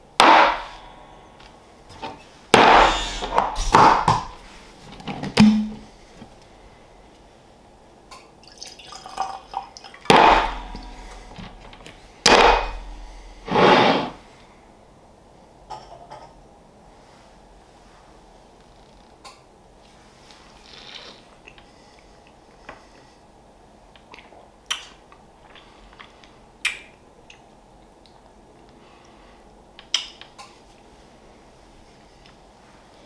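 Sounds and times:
noisy burst: 2.5 - 6.2, 10.1 - 14.4
short hollow pop: 5.4 - 5.9, 10.1 - 13.5
liquid pouring into glass: 8.4 - 10.1.

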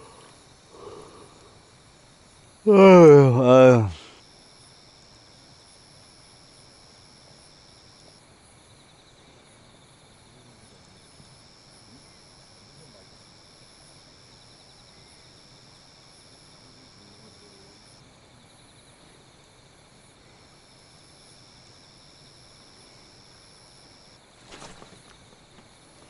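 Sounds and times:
high-pitched insect trill: 0.0 - 25.9
pulsing insect chirr: 0.0 - 26.0
brief rustle: 24.4 - 25.7.

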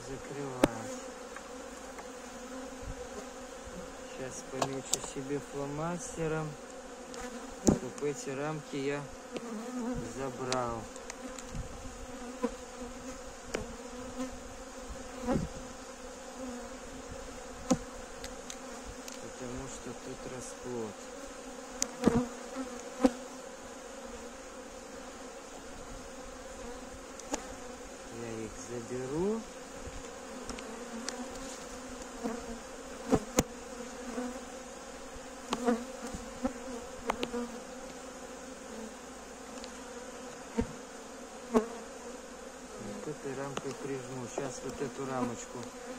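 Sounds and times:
bees humming: 0.0 - 45.9
hive tool knocking wooden frames: 0.5 - 2.2, 4.4 - 5.4, 6.6 - 8.2, 17.6 - 19.3, 30.0 - 34.4, 35.4 - 38.1, 39.5 - 40.8, 43.3 - 45.9.

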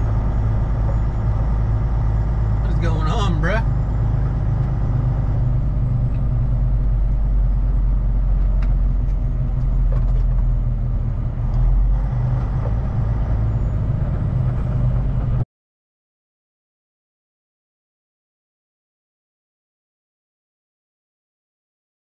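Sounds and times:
diesel truck engine rumbling: 0.0 - 15.5.

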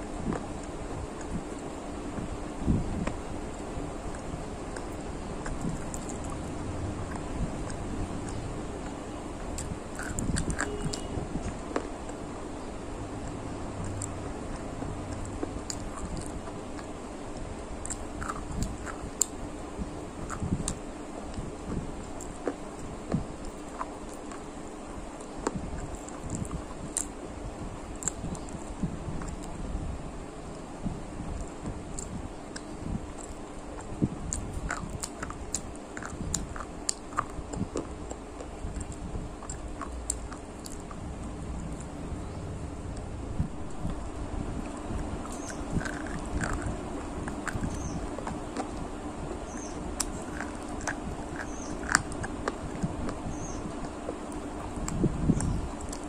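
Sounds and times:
chewing a hard dry stick: 3.0 - 12.3, 13.0 - 19.4, 31.4 - 56.0.

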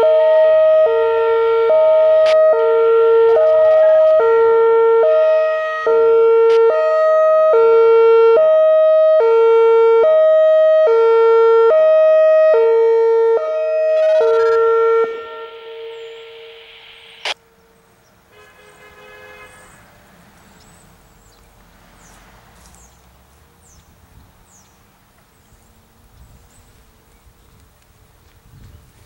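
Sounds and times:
electronic warning siren: 0.0 - 17.4
faint distant tone: 14.3 - 17.7
faint high chirps: 15.1 - 17.4
sharp click: 16.7 - 17.4.

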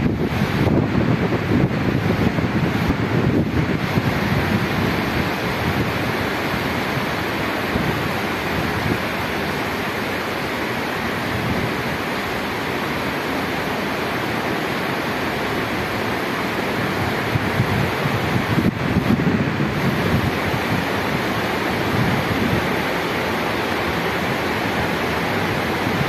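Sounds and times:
wind buffeting microphone: 0.0 - 9.8, 16.9 - 23.0
rain hissing: 0.0 - 26.0.

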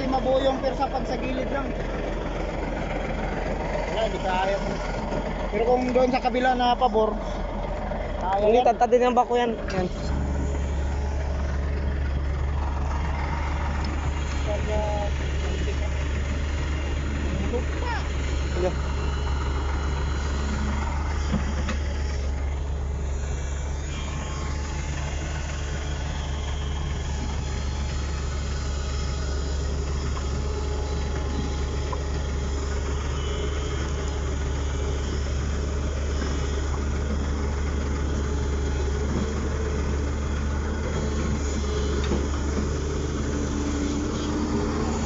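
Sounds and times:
heavy diesel engines droning: 0.0 - 45.0.

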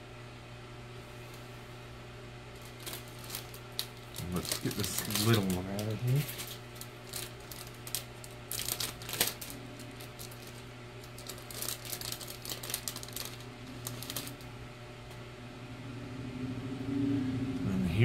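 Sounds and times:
steady low hum: 0.0 - 18.0
plastic wrapping crinkling: 2.5 - 14.5.

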